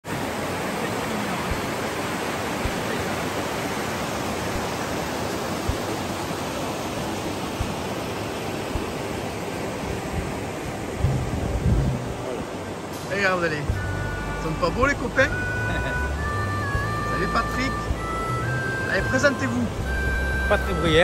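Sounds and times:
river rushing over rocks: 0.0s - 21.0s
soft low thumps: 8.7s - 9.0s, 10.1s - 12.4s.

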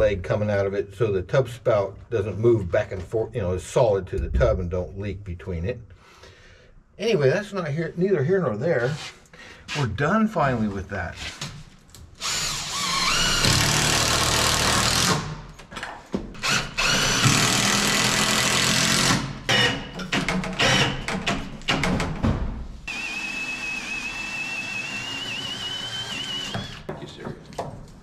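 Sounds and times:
cordless drill driving screws: 12.2s - 15.2s, 16.4s - 19.8s, 22.9s - 26.9s.

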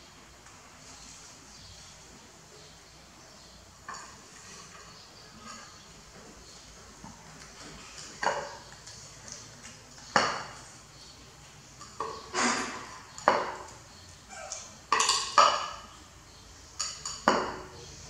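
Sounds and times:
plate clattering on tiled floor: 11.8s - 13.8s, 14.4s - 15.9s, 16.8s - 17.8s.

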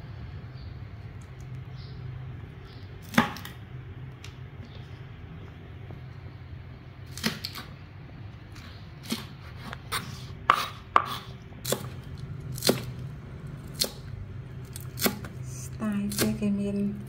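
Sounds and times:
knife chopping on plastic board: 9.0s - 13.0s, 14.7s - 15.4s.

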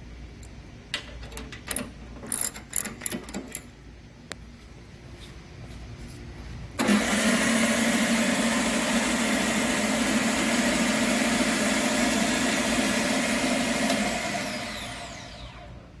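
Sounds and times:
belt sander running: 6.8s - 15.8s
belt sander winding down: 6.8s - 15.8s.

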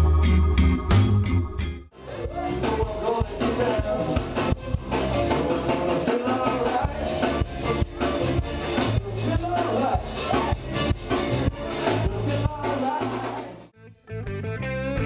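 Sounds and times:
guitar: 0.0s - 15.0s
singing: 2.0s - 13.6s
steady drum beat: 2.0s - 13.6s.

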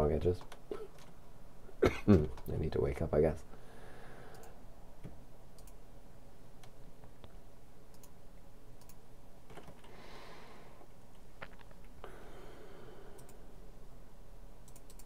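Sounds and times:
low electrical hum: 0.0s - 15.0s
computer mouse clicks: 4.3s - 5.8s, 6.6s - 8.2s, 8.8s - 9.9s, 13.1s - 13.4s, 14.6s - 15.0s.

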